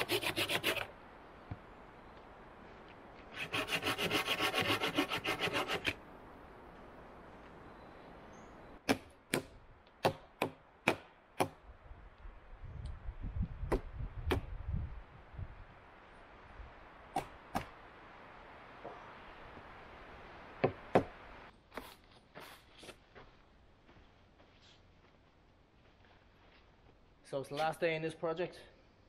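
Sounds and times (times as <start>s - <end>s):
hand saw cutting wood: 0.0s - 0.9s, 3.3s - 6.0s
sharp wooden knocks: 20.6s - 21.1s.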